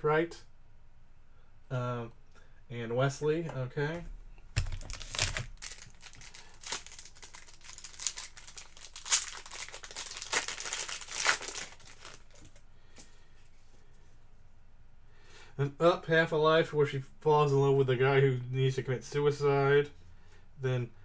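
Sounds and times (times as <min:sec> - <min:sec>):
wrapper crinkling and tearing: 0:04.6 - 0:12.6.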